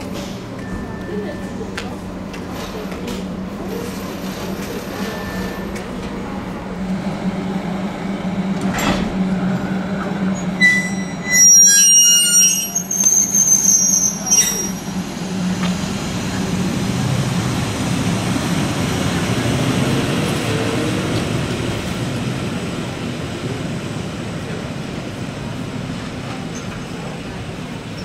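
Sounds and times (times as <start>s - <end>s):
train wheels rolling on rails: 12.1s - 28.0s.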